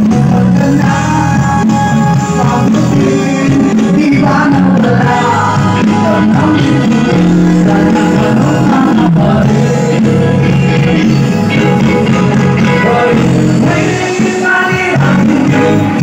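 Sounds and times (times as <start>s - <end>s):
live band with singer: 0.0s - 16.0s.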